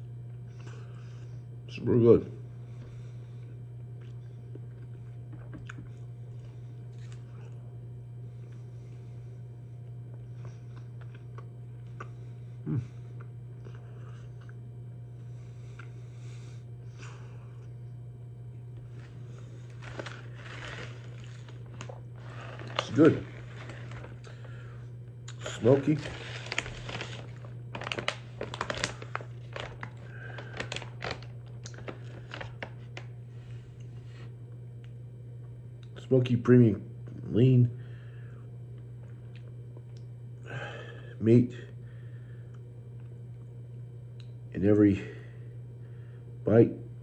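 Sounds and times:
steady low hum: 0.0 - 47.0
person chewing: 3.8 - 7.6, 10.1 - 14.6, 15.7 - 16.1
plastic bag crinkling: 18.9 - 33.1.

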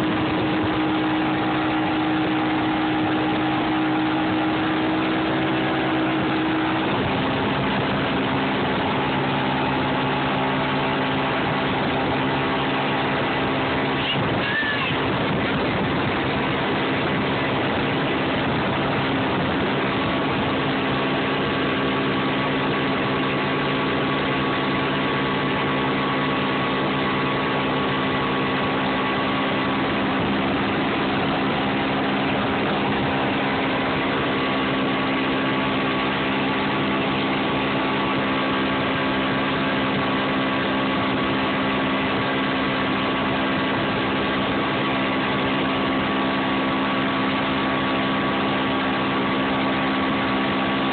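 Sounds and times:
outboard motor running: 0.0 - 50.9
water rushing from boat wake: 0.0 - 50.9.

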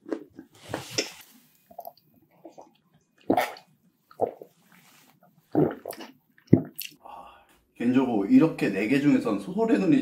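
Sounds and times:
gulps of a drink: 1.7 - 4.5, 5.5 - 7.0.

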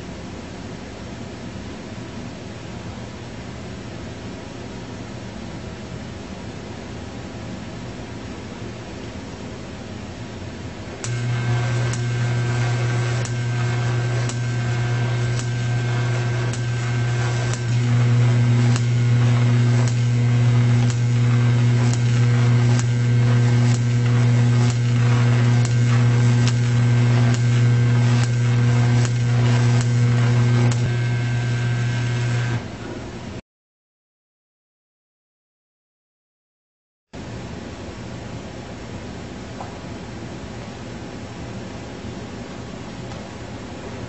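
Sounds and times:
electric arc snapping: 10.9 - 32.6
solenoid humming loudly: 10.9 - 33.4.

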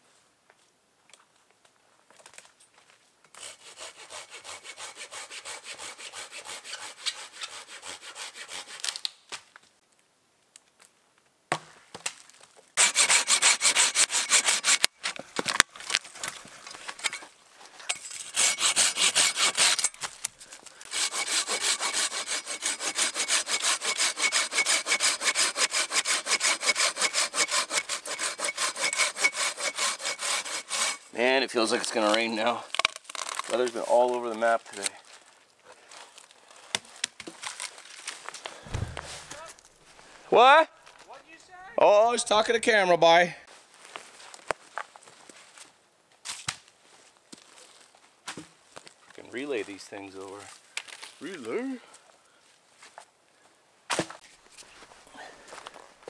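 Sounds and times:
hand saw cutting branch: 3.4 - 9.1, 12.8 - 15.2, 18.1 - 20.2, 20.8 - 31.1.

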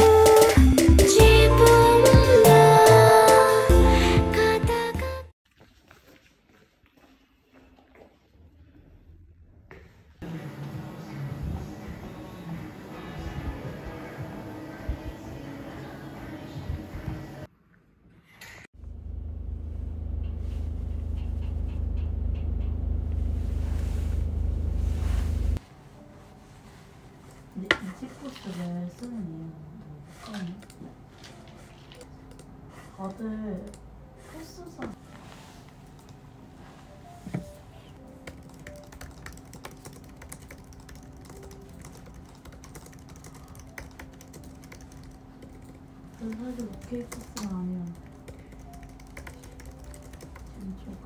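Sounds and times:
car rumble inside cabin: 18.8 - 25.6
laptop keyboard typing: 38.2 - 51.0.

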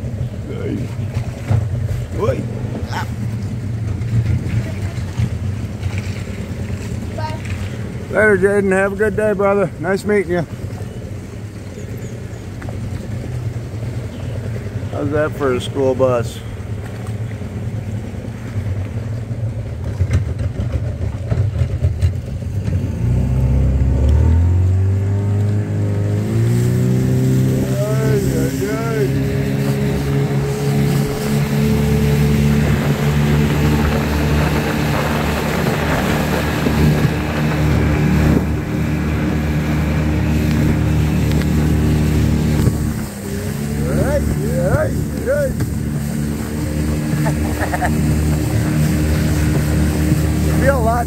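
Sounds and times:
outboard motor running: 0.0 - 51.0
water rushing: 0.0 - 51.0.

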